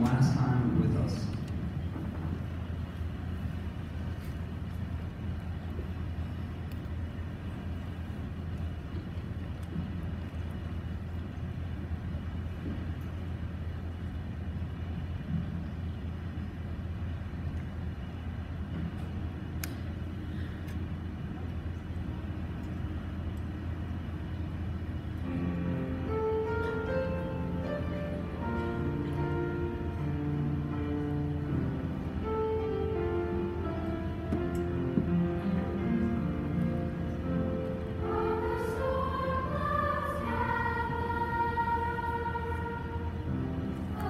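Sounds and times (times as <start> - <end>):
low hum: 0.0 - 44.0
small click: 19.0 - 19.9.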